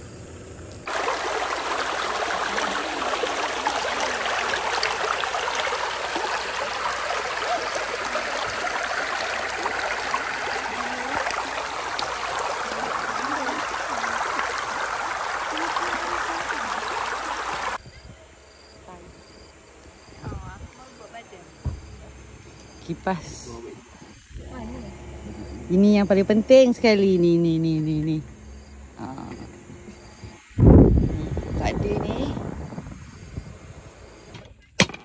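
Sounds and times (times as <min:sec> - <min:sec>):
water rushing over small rocks: 0:00.9 - 0:17.8.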